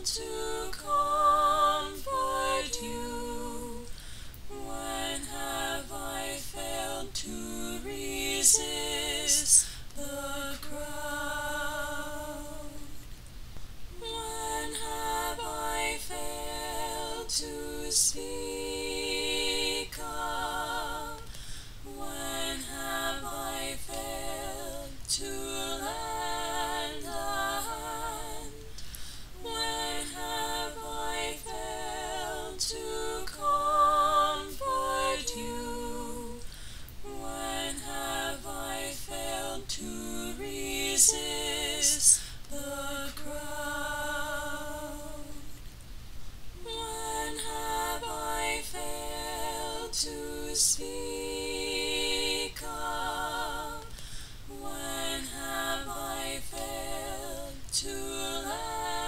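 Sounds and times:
woman singing: 0.0s - 13.0s, 14.0s - 21.2s, 21.9s - 36.5s, 37.1s - 45.6s, 46.6s - 53.9s, 54.5s - 59.0s.

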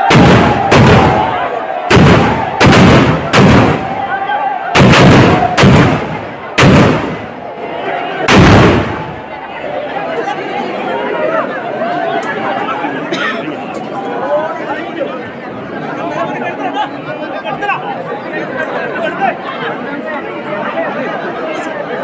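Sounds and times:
firecrackers banging: 0.0s - 4.1s, 4.8s - 7.4s, 8.3s - 9.3s
large crowd din: 0.0s - 22.0s.

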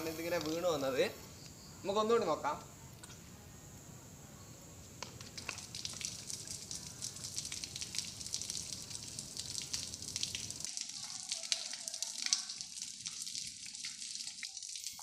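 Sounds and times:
water drops pattering on leaves: 0.1s - 0.9s, 4.8s - 15.0s.

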